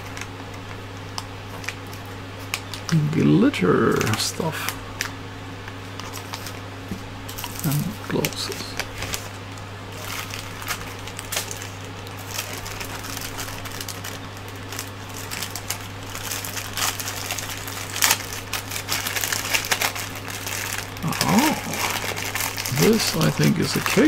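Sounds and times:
plastic bag crinkling: 0:10.0 - 0:24.0.

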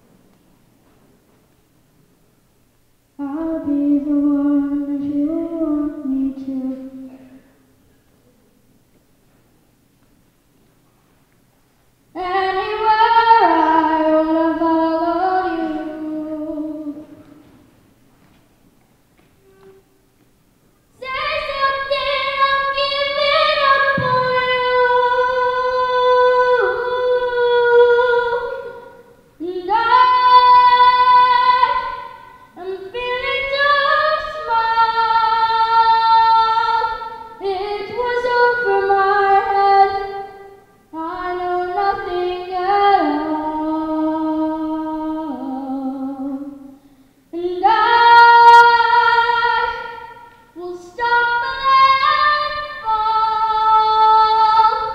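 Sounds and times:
boy singing unaccompanied: 0:03.2 - 0:07.4, 0:12.2 - 0:17.4, 0:20.9 - 0:54.9.

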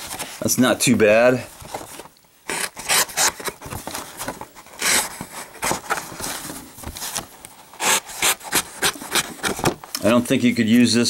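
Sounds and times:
knife cutting cardboard: 0:02.5 - 0:03.7, 0:04.5 - 0:06.1, 0:07.8 - 0:09.8.

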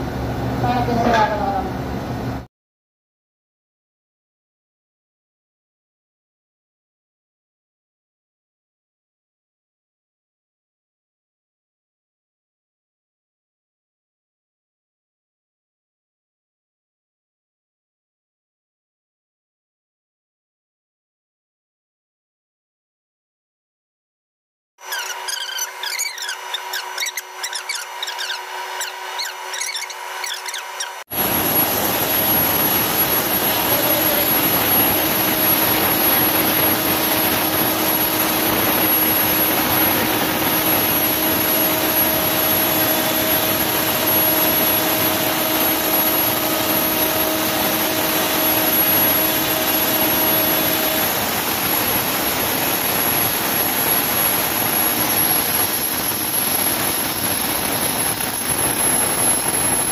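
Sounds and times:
air compressor running: 0:24.8 - 0:59.9.

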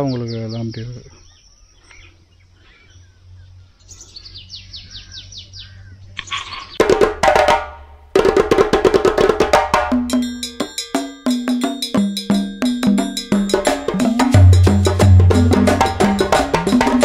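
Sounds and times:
bird chirping: 0:00.0 - 0:06.8
percussive music: 0:06.8 - 0:17.0.

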